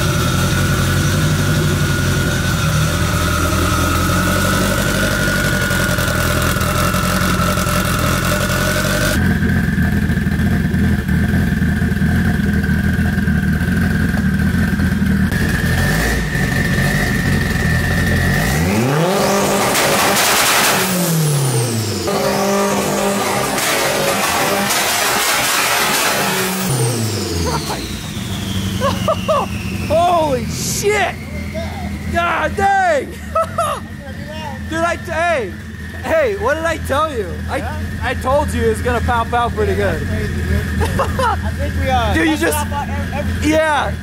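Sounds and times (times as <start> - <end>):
car engine running: 0.0 - 44.0
engine revving: 0.0 - 44.0
high whine: 0.0 - 44.0.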